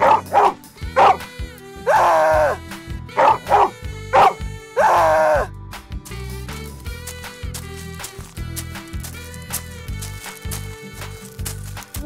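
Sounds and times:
dog barking: 0.0 - 1.3, 3.2 - 5.5
light background music: 0.0 - 12.0.

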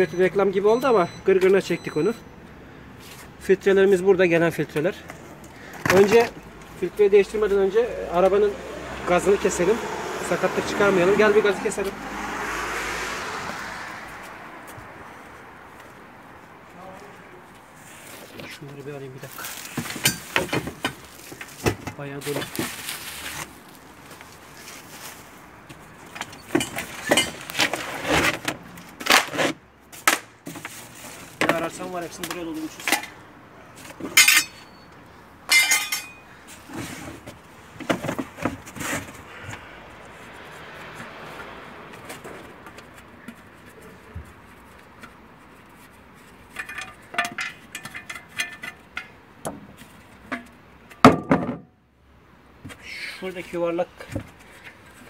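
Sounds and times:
tools clattering in a box: 34.1 - 34.8, 35.5 - 36.2, 46.5 - 49.1.

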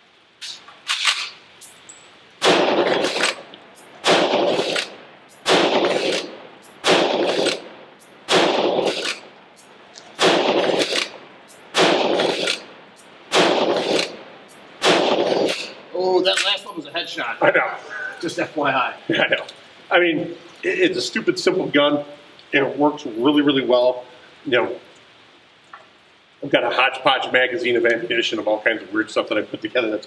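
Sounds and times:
rifle shots with echo: 2.4 - 9.3, 10.2 - 16.4.

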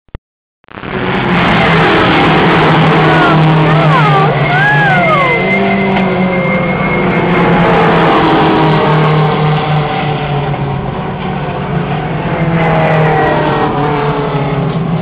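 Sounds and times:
race car engines revving: 0.8 - 15.0.

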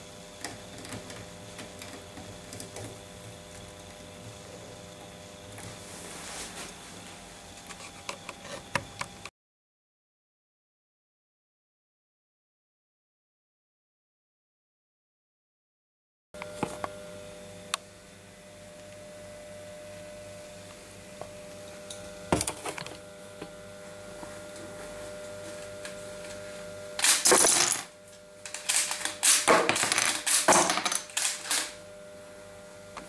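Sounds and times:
plastic bricks clattering on wood: 28.7 - 31.1.

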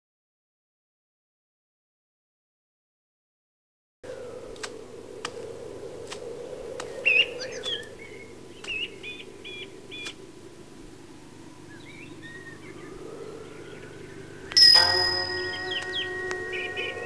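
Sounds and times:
low background hum: 4.4 - 17.0
faint clicks: 4.5 - 8.0, 8.6 - 9.1, 9.9 - 10.3
small birds chirping: 4.5 - 17.0.

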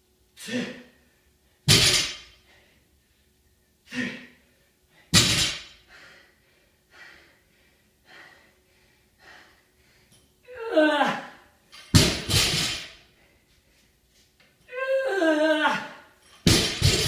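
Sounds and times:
person breathing hard: 3.8 - 10.3
person panting: 5.8 - 10.2.

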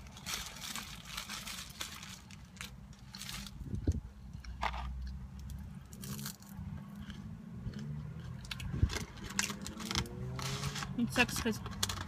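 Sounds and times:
person chewing food: 3.8 - 9.6.

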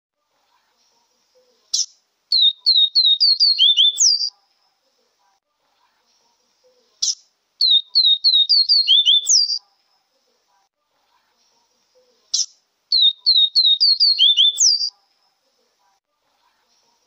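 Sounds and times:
bird singing whistled notes: 1.8 - 4.3, 7.0 - 9.6, 12.4 - 14.9.

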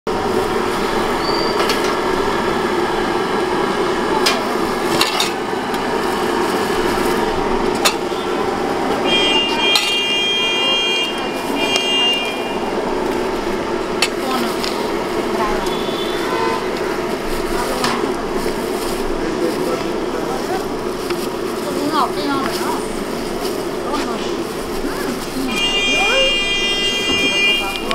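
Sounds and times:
traffic and street noise: 0.1 - 27.9
high steady tone: 8.1 - 17.6, 25.4 - 27.9.

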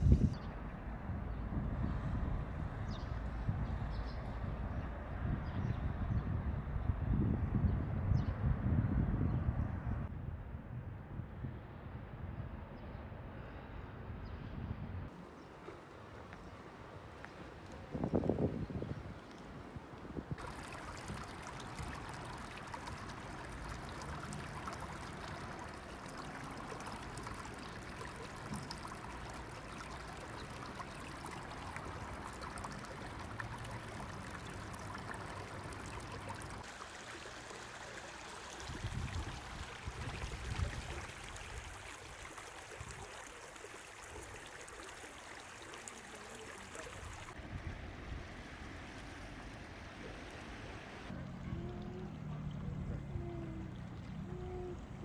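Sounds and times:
stream running over rocks: 15.1 - 55.0.

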